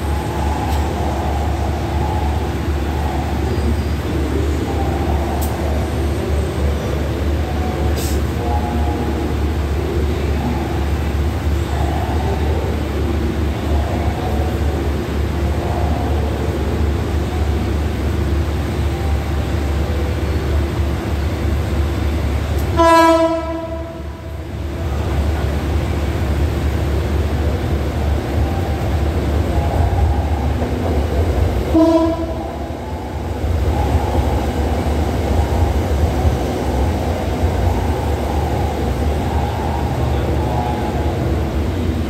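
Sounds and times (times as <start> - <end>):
train rumbling on rails: 0.0 - 42.0
train horn blasts: 22.7 - 24.3, 31.7 - 32.7.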